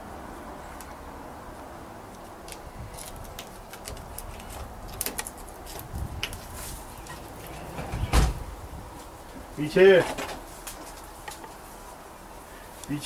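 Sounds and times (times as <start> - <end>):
steady low rumble: 1.0 - 9.6
heavy thump: 7.8 - 8.5.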